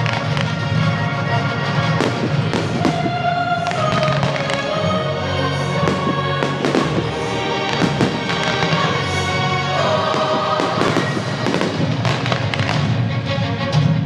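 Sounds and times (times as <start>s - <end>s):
loud music: 0.0s - 14.0s
fireworks bursting: 1.9s - 13.0s.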